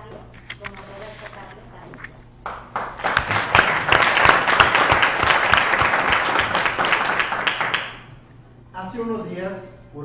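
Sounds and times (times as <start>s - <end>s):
audience applauding: 2.5s - 8.1s.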